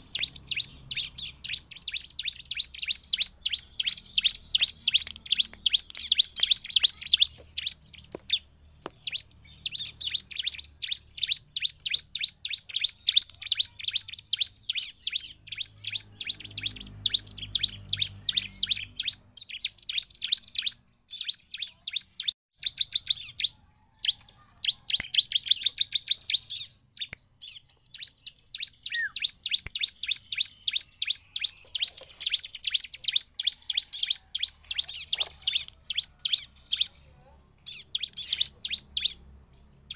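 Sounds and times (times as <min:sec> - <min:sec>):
bird singing high chirps: 0:00.0 - 0:39.9.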